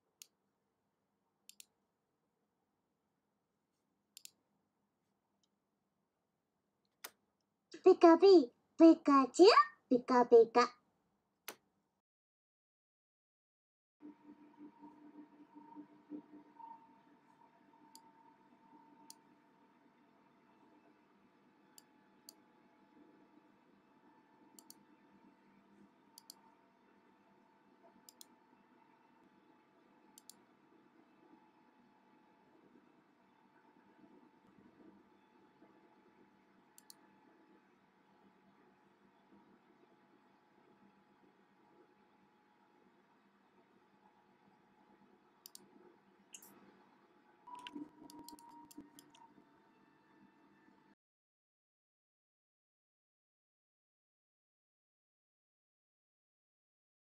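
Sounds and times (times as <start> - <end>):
faint steady hum: 14.0 - 51.0
mouse button clicks: 47.5 - 49.2.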